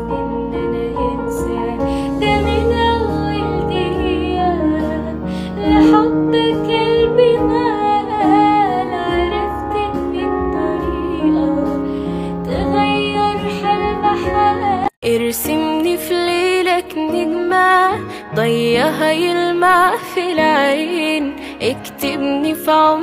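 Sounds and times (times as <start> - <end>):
sustained keyboard chords: 0.0 - 14.9
woman singing pop song: 0.0 - 23.0.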